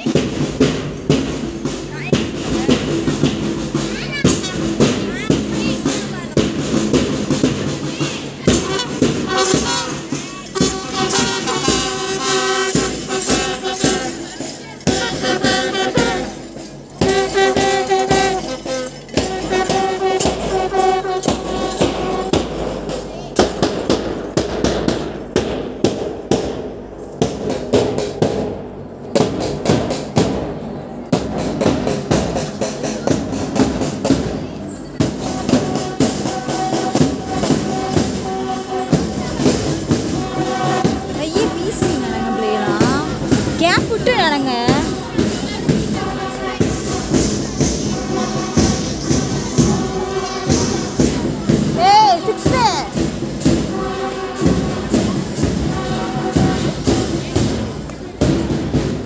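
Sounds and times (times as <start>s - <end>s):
steady drum beat: 0.0s - 59.0s
hand cymbals: 0.1s - 28.6s
bugles playing held notes: 6.7s - 23.0s, 35.0s - 58.9s.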